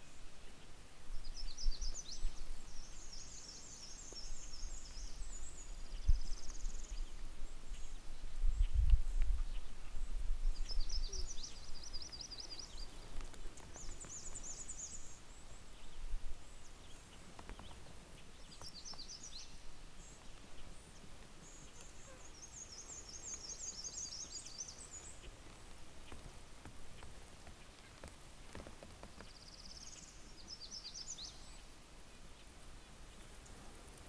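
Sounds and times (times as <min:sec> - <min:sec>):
faint outdoor hiss: 0:00.0 - 0:34.0
songbird singing trilled phrases: 0:01.2 - 0:20.8, 0:21.4 - 0:25.4, 0:29.2 - 0:31.7.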